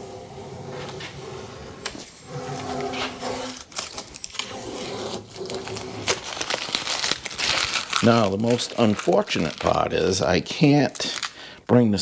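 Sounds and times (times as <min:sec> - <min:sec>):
tape ripping off: 0:02.9 - 0:10.3.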